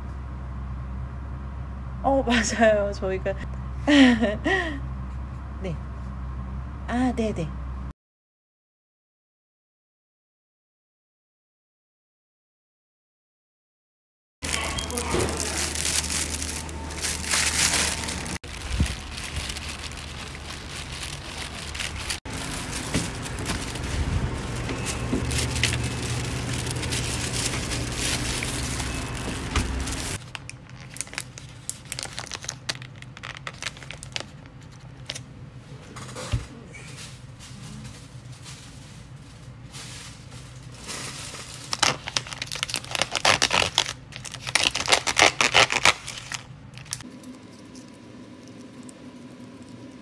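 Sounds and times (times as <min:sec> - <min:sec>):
steady background hum: 0:00.0 - 0:07.9, 0:14.4 - 0:50.0
plastic bags crinkling: 0:14.4 - 0:35.2, 0:38.0 - 0:50.0
takeout bag rummaging: 0:14.4 - 0:35.2.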